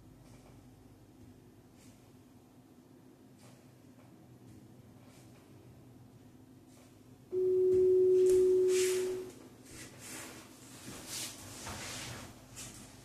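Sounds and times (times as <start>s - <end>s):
soft movement noises: 3.3s - 5.7s, 6.6s - 13.0s
electronic timer beep: 7.3s - 9.3s.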